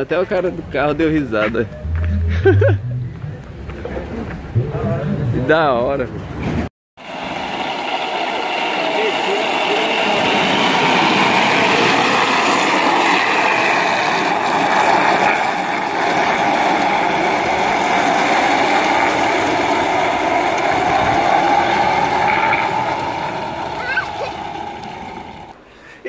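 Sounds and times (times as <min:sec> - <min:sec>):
cart wheels rolling over asphalt: 0:07.0 - 0:25.6.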